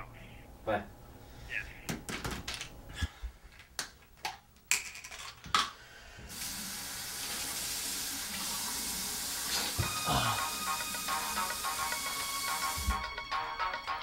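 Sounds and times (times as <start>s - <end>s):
tap running with hiss: 6.2s - 13.2s.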